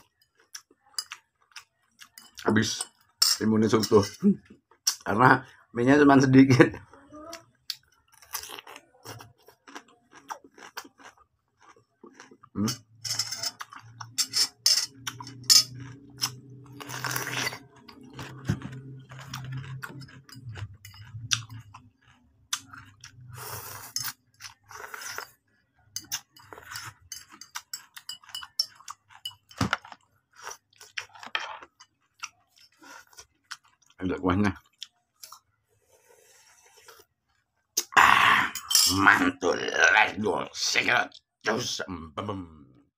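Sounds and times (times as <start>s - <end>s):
crunching and chewing: 0.0s - 3.2s, 6.8s - 14.2s, 14.9s - 35.6s, 36.4s - 37.9s.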